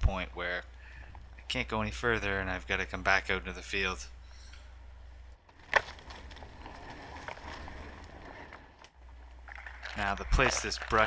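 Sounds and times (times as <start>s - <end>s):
twigs crackling: 5.3s - 11.0s
branches and leaves rustling: 5.4s - 11.0s.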